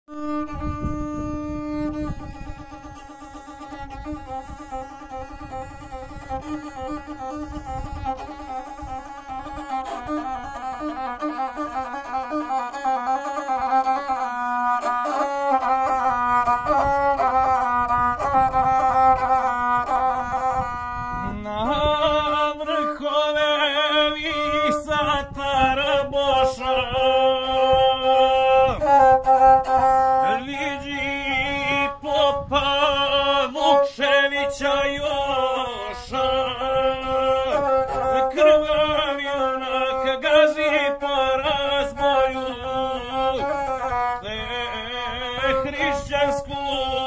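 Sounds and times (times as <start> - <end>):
bowed single-string fiddle: 0.0 - 47.0
man singing: 21.2 - 47.0.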